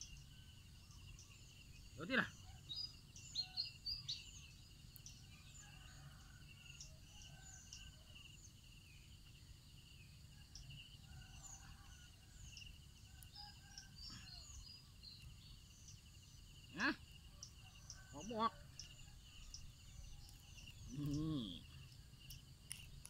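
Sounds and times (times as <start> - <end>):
insect trill: 0.0 - 23.0
bird chirps and calls: 16.7 - 23.0.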